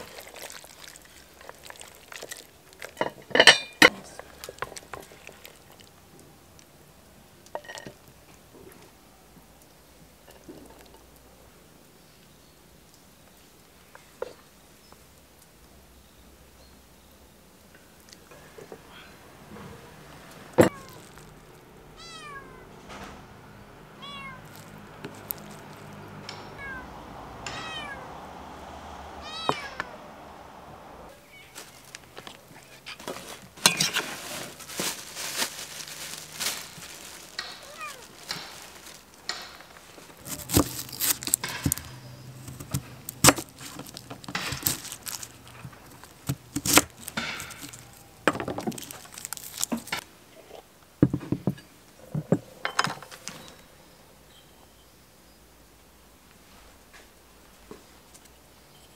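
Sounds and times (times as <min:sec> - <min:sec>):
cat meowing: 0:20.6 - 0:21.3, 0:21.9 - 0:22.8, 0:24.0 - 0:24.7, 0:26.4 - 0:28.3, 0:29.2 - 0:30.1, 0:31.1 - 0:31.9, 0:37.5 - 0:38.2
onion pulled apart by hand: 0:40.2 - 0:47.9.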